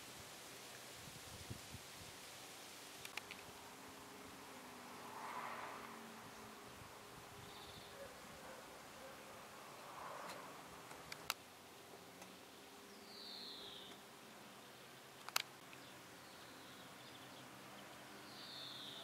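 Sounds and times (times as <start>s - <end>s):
sharp clicks: 3.0s - 3.5s, 10.9s - 11.4s, 15.2s - 15.8s.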